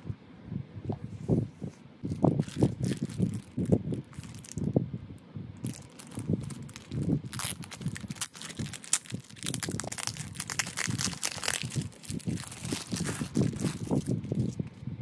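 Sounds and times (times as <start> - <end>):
plastic bag crinkling: 2.1 - 4.7, 5.6 - 14.8.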